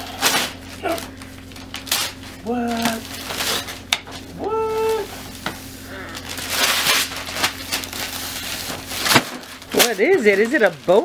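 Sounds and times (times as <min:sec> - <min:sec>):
wrapping paper ripping and crinkling: 0:00.0 - 0:11.0
high-pitched vocal sound: 0:04.4 - 0:05.2.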